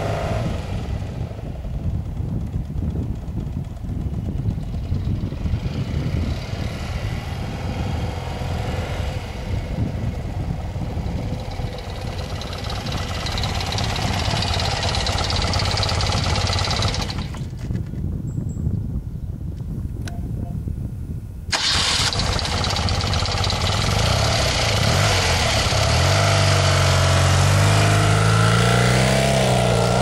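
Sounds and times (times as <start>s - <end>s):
motorcycle engine running at low revs: 0.0s - 19.0s, 21.5s - 30.0s.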